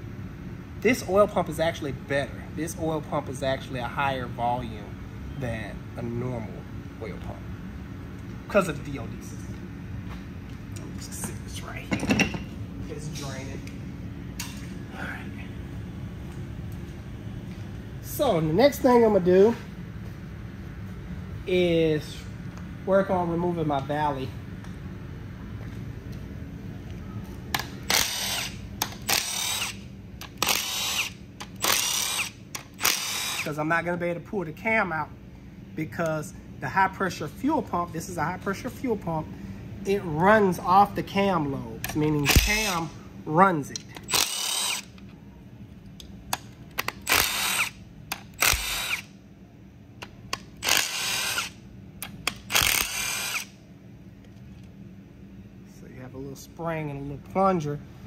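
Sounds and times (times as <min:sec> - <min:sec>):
impact wrench spinning bolts: 0:27.8 - 0:33.5, 0:41.9 - 0:42.9, 0:43.9 - 0:45.0, 0:46.4 - 0:49.1, 0:50.3 - 0:53.5.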